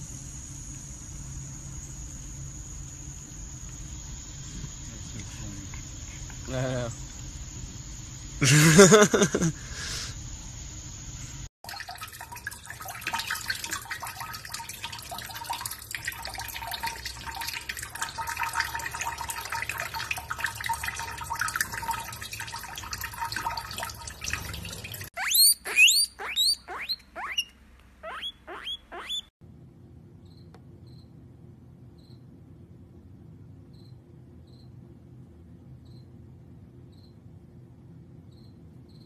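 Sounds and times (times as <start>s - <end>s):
water splashing into a steel sink: 11.6s - 25.2s
water running from a tap: 11.6s - 25.3s
sharp high bird chirps: 25.2s - 29.3s.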